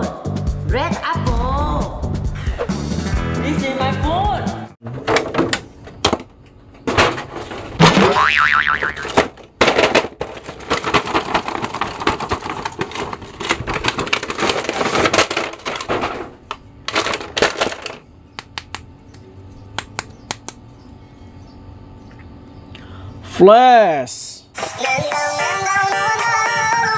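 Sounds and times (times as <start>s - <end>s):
plastic packaging crinkling: 10.2s - 16.0s.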